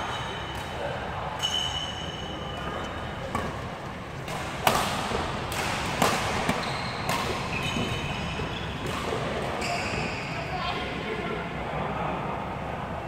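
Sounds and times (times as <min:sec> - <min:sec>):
rackets hitting shuttlecock: 0:00.1 - 0:09.9
shoes squeaking on floor: 0:01.4 - 0:05.4, 0:06.3 - 0:08.9, 0:09.5 - 0:10.4.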